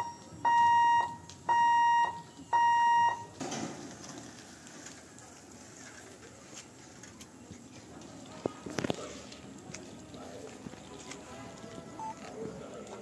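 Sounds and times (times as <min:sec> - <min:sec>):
level crossing warning beeps: 0:00.0 - 0:03.4, 0:12.0 - 0:12.2.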